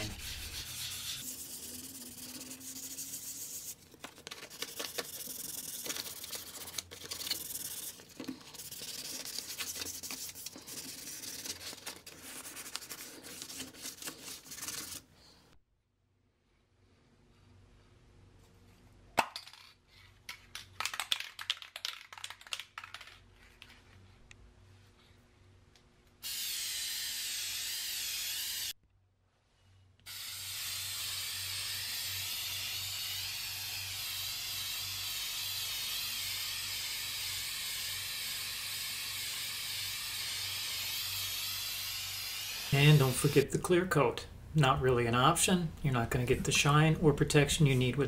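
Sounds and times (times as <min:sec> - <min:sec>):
spray can clicking and rattling: 0:04.0 - 0:10.2, 0:20.3 - 0:23.9
aerosol spray hissing: 0:04.7 - 0:11.4, 0:30.1 - 0:43.5.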